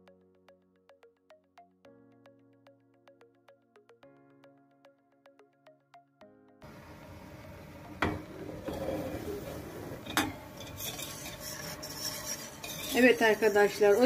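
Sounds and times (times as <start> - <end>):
background music: 0.0 - 9.9
wire whisk scraping a metal pot: 8.6 - 14.0
whisk clinking against pot: 10.0 - 14.0.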